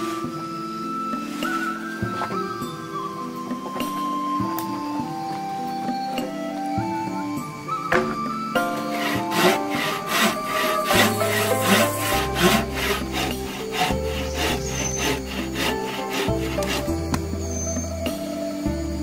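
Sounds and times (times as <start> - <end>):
background music: 0.0 - 19.0
hand saw cutting wood: 8.7 - 17.3.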